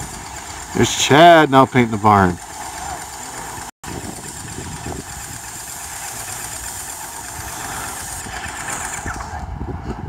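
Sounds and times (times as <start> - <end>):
paint sprayer engine running: 0.0 - 9.5
continuous hiss: 5.0 - 9.2.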